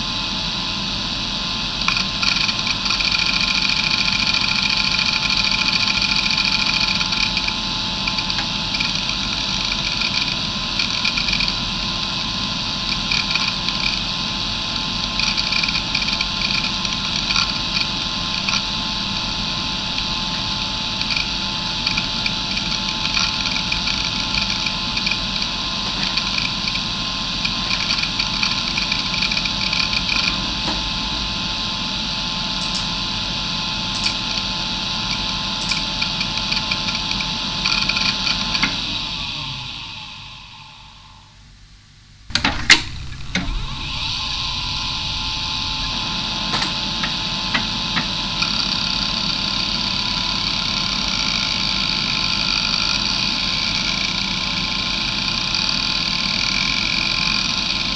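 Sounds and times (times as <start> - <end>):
hard drive whine: 0.0 - 57.9
hard drive seek clicks: 1.8 - 30.9, 33.9 - 38.9.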